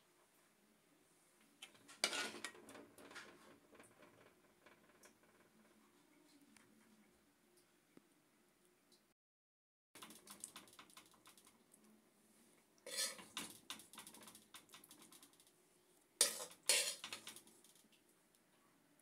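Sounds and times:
utensil clinking on earthenware dishes: 16.2 - 17.4.

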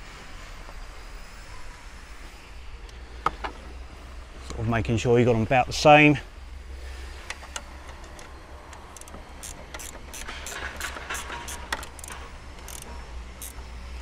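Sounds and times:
spanner ratchet clicking: 7.3 - 13.7.

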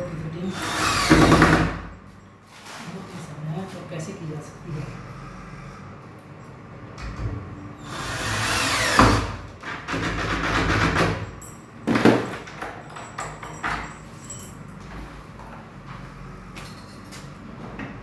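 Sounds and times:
cordless drill whirring: 0.5 - 1.4, 7.8 - 9.3.

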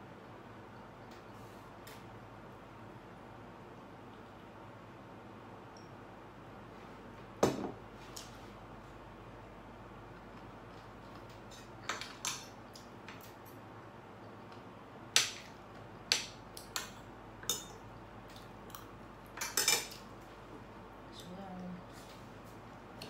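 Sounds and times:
cutlery clinking on a plate: 19.4 - 20.0.

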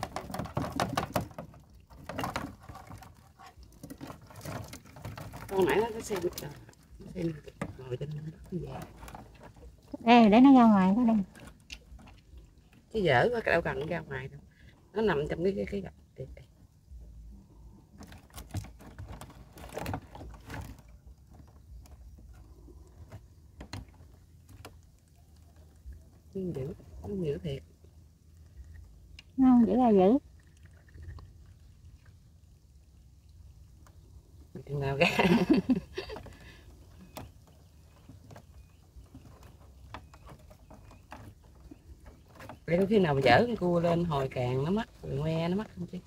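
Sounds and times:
wire crab trap rattling and scraping: 0.0 - 12.9, 18.0 - 26.1.

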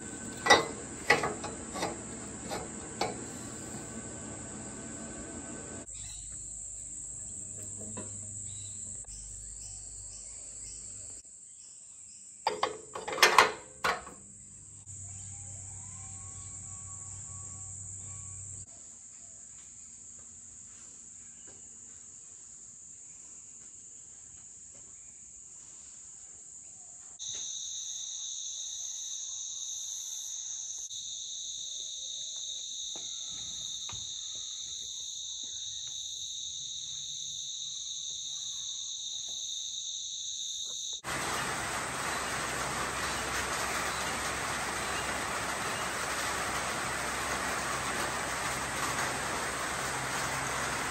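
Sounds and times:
sharp clicks and knocks: 0.0 - 5.9
insects trilling: 0.0 - 12.8, 26.6 - 50.9.

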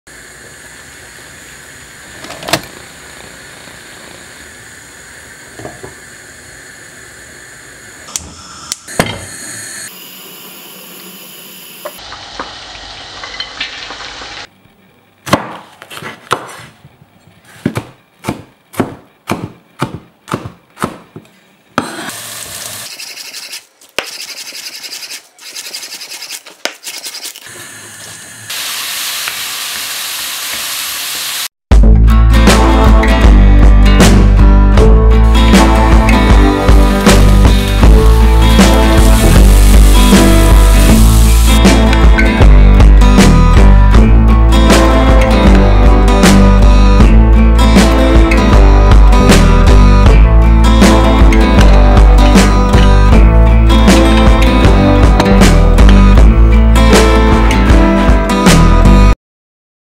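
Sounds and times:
food sizzling in a wok: 8.4 - 14.5, 22.1 - 23.0, 28.4 - 31.5, 36.5 - 41.8.

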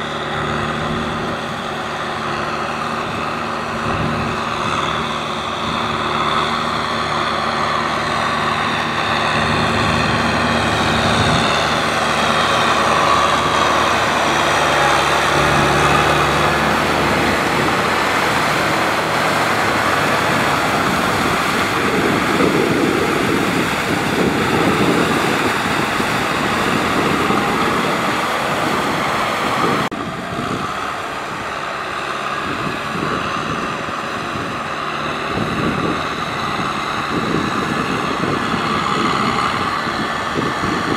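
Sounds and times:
mud and water churning: 0.0 - 40.9
tractor diesel engine running: 0.0 - 40.9.

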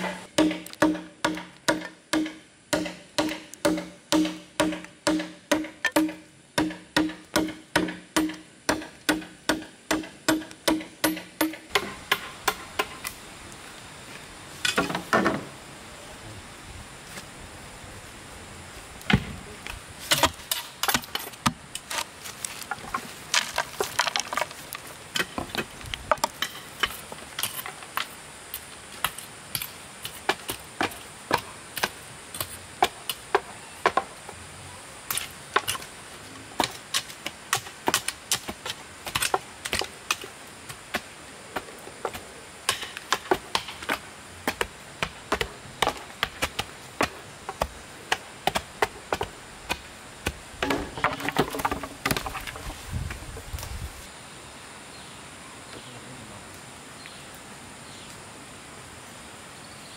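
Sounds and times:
blade chopping bamboo: 0.0 - 12.9, 36.6 - 41.1.

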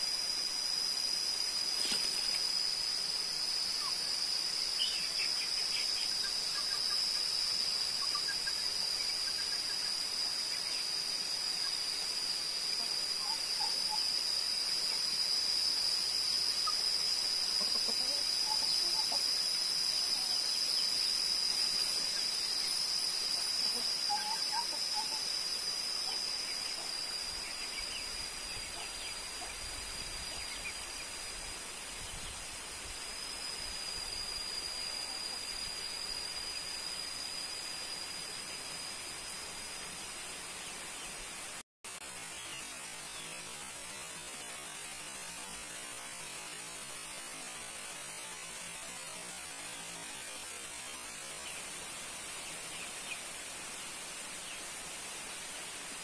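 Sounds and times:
high-pitched insect drone: 0.0 - 56.0
faint bird chirps: 1.2 - 32.5.

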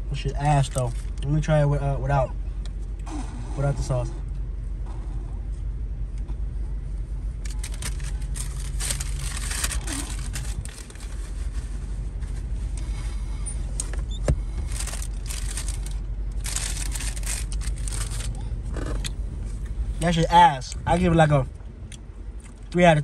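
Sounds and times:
car cabin hum: 0.0 - 23.0
paper wrapper crinkling: 7.4 - 11.8, 14.6 - 18.4.

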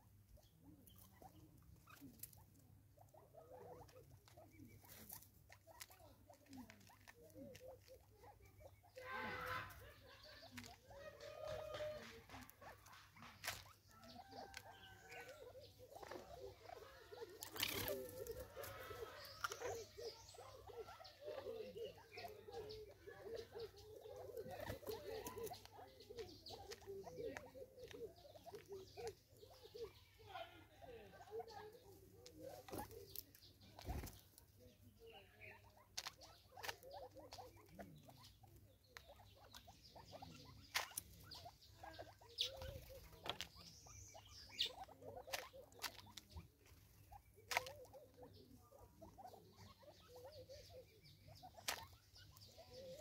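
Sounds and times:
birds clucking softly: 0.0 - 53.0
bird footsteps: 0.3 - 30.1, 31.3 - 53.0
pecking and scratching on wood: 0.7 - 30.0, 31.4 - 53.0.

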